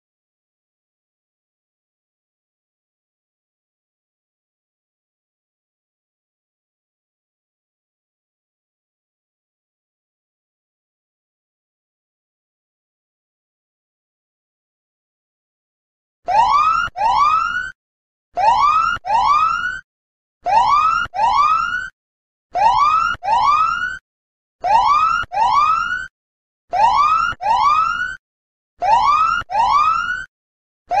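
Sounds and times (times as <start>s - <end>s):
electronic whoop alarm tones: 16.3s - 17.8s, 18.4s - 19.8s, 20.4s - 21.9s, 22.6s - 24.0s, 24.6s - 26.1s, 26.7s - 28.2s, 28.8s - 30.3s.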